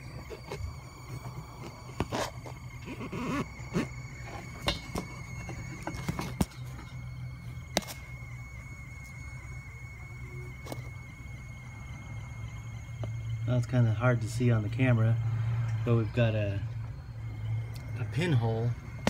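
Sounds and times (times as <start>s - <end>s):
steady low hum: 0.0s - 19.0s
thin high tone: 0.0s - 19.0s.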